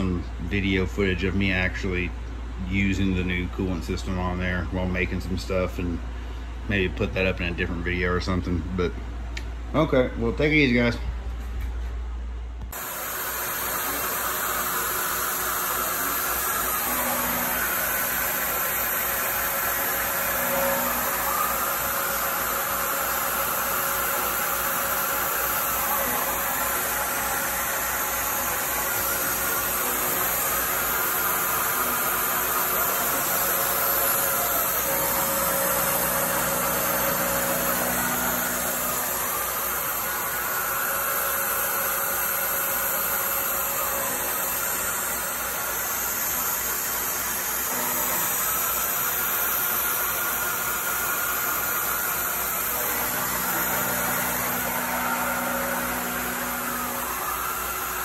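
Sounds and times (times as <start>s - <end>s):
hiss of coolant sprayer: 12.8s - 58.0s
milling machine cutting metal: 12.8s - 58.0s.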